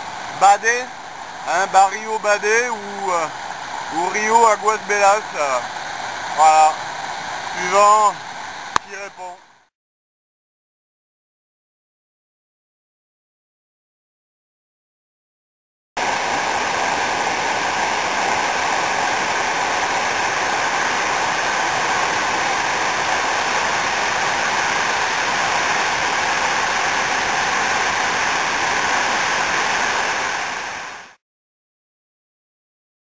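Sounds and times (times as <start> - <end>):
waterfall rushing: 0.0 - 9.6, 16.0 - 31.2.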